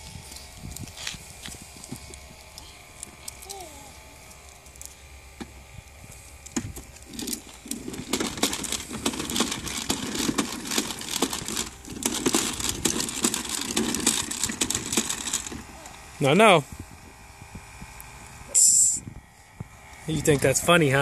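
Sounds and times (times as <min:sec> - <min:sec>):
plastic toy rattling on concrete: 0:00.0 - 0:05.0, 0:06.4 - 0:15.9.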